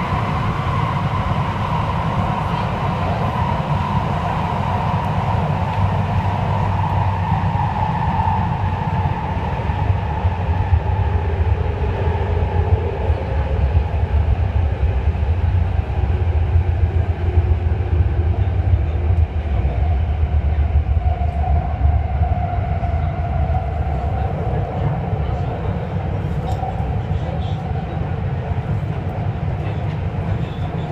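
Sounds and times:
subway train rumbling in tunnel: 0.0s - 30.9s.

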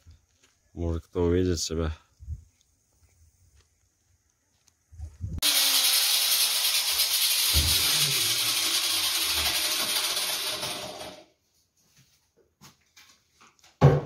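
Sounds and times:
power tool grinding plaster: 5.4s - 11.2s.

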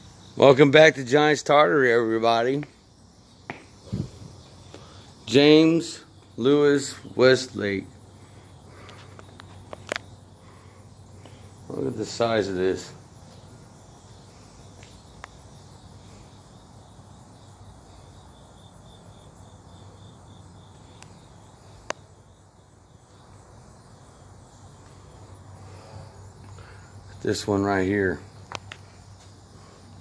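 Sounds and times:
faint insects chirping: 0.0s - 30.0s.

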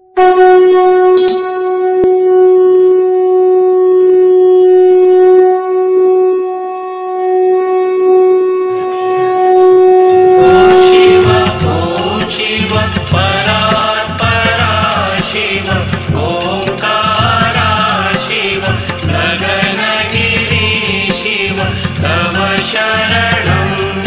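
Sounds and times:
conch shell blown: 0.1s - 11.2s.

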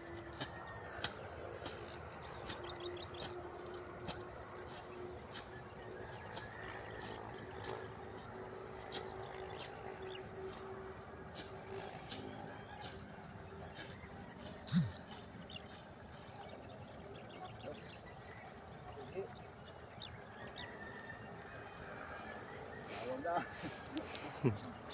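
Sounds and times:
sickle cutting grass: 0.0s - 17.7s
crickets and insects droning: 0.0s - 24.9s.

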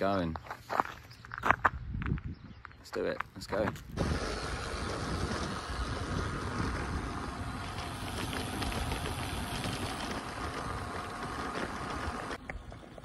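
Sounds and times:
wind buffeting microphone: 1.4s - 2.8s, 3.6s - 13.0s
bike tyres rolling on tarmac: 3.9s - 13.0s.

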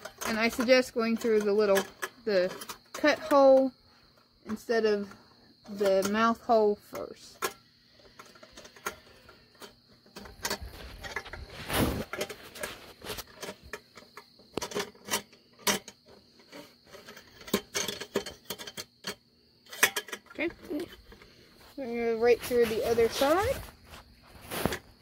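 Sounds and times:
wire clicking on aluminium cans: 0.0s - 21.4s
rustling scrape: 4.5s - 18.8s, 19.7s - 25.0s.

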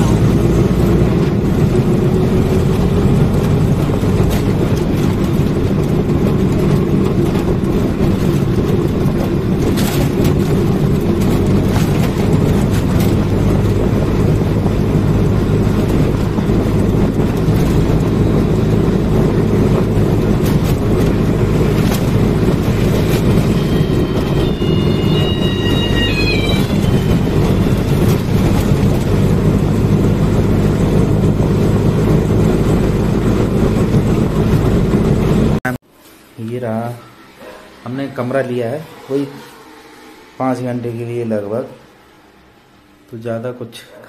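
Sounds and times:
knocks and rattles: 2.3s - 35.6s.

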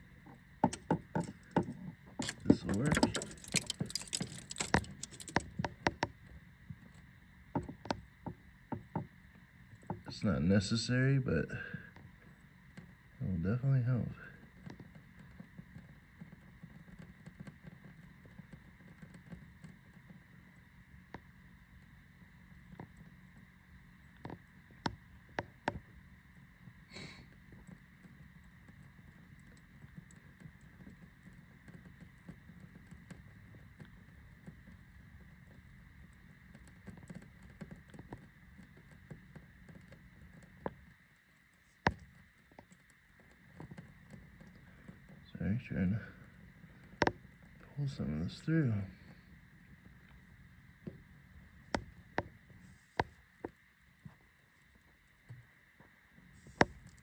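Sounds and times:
faint steady hum: 0.0s - 57.0s
soldering taps and scrapes: 0.6s - 9.1s, 26.9s - 57.0s.

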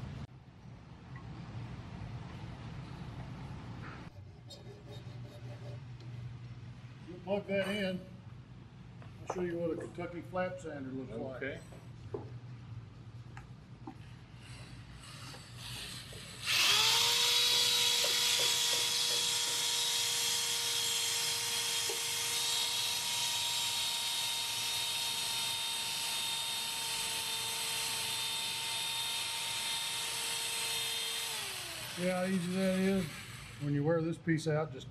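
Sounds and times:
electric drill whining: 15.0s - 33.7s.

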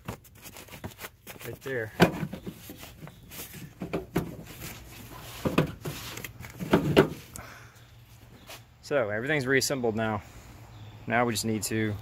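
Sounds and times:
hose rustling with clicks: 0.0s - 7.4s.

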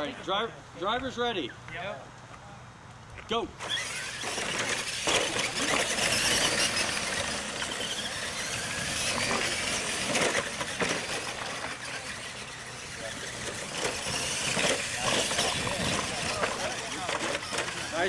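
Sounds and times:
toy truck motors whining: 3.6s - 18.0s.

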